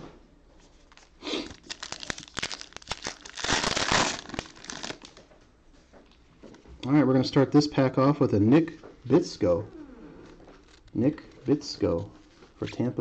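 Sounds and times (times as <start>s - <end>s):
card pack wrapper crinkling and tearing: 0.8s - 5.2s, 10.6s - 11.0s.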